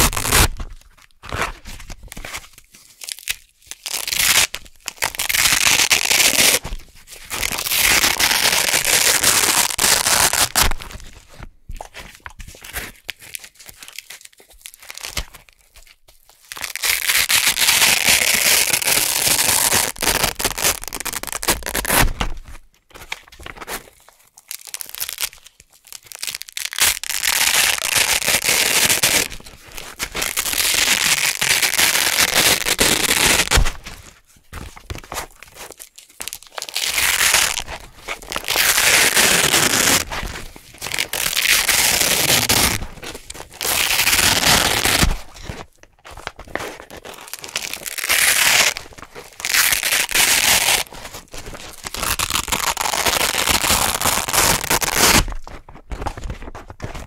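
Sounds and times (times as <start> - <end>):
velcro peeling apart: 0.0 - 2.4, 3.0 - 6.7, 7.3 - 11.0, 16.5 - 22.4, 24.3 - 33.8, 35.5 - 45.7, 46.5 - 55.4.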